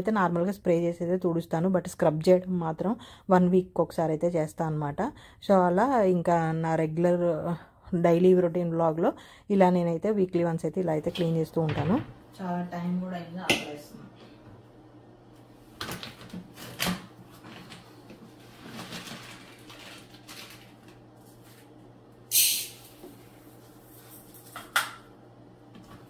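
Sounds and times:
kitchen items knocking and clattering: 0:11.0 - 0:12.2
short hiss: 0:22.3 - 0:22.8.

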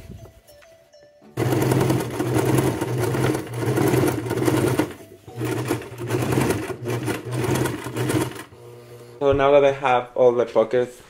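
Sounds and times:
sewing machine running fast: 0:01.4 - 0:09.2.

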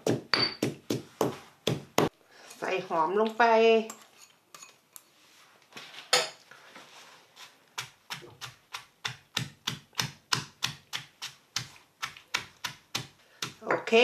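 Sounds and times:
stone pestle pounding in mortar: 0:00.0 - 0:02.1, 0:07.8 - 0:13.9.

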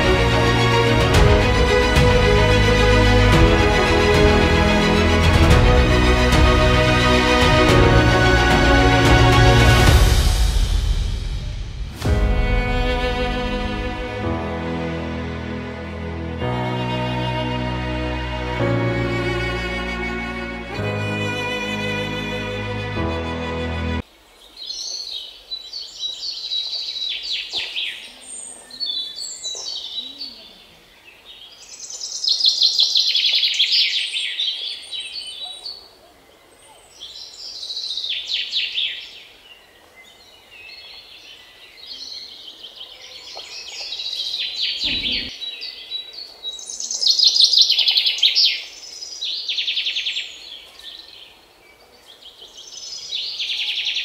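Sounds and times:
birds chirping trills: 0:34.3 - 0:47.4.

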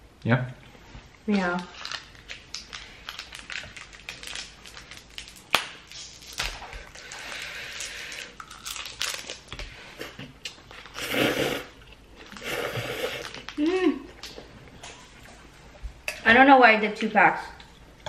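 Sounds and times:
noodles being slurped: 0:10.8 - 0:13.6.

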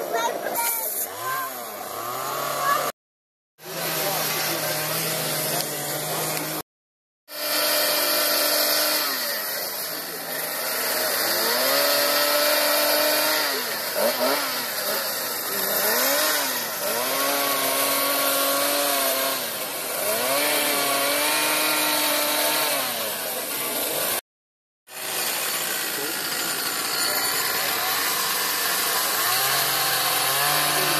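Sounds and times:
chainsaw revving: 0:00.9 - 0:03.0, 0:03.6 - 0:06.6, 0:07.3 - 0:24.2, 0:24.9 - 0:30.9.

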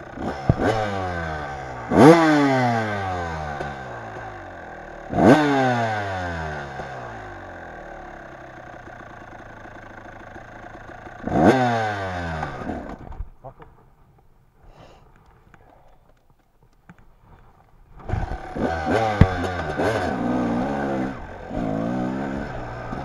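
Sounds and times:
dirt bike engine revving: 0:00.0 - 0:13.2, 0:18.0 - 0:23.0.

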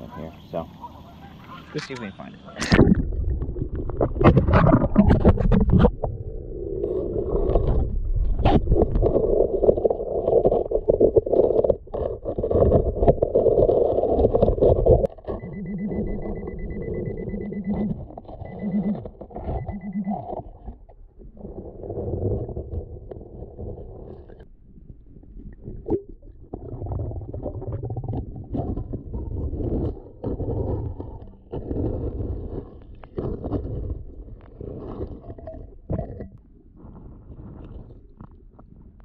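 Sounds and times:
underwater rustling and knocks: 0:02.6 - 0:39.0.

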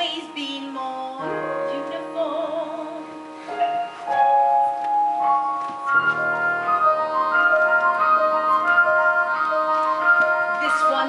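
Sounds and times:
woman singing: 0:00.0 - 0:03.1, 0:06.7 - 0:11.0
instrumental accompaniment: 0:00.0 - 0:11.0.

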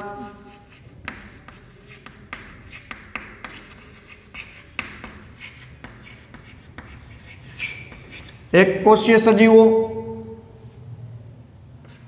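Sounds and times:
chalk tapping and scratching: 0:00.0 - 0:08.5, 0:11.8 - 0:12.0.

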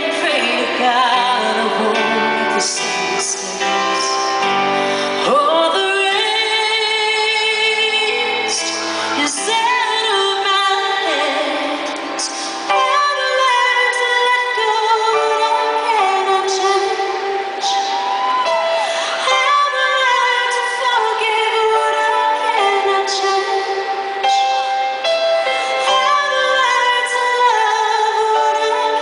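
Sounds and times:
woman singing a slow ballad: 0:00.0 - 0:29.0
live band playing: 0:15.6 - 0:19.6.

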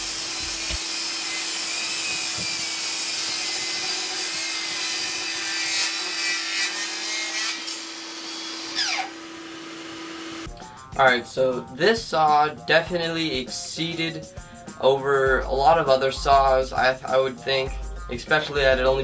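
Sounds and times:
saw blade rasping wood: 0:00.0 - 0:10.4
miter saw whining: 0:00.0 - 0:10.5.

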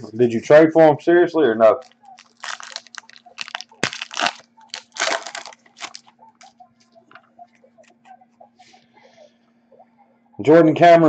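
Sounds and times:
foil wrapper crinkling: 0:01.8 - 0:07.0.

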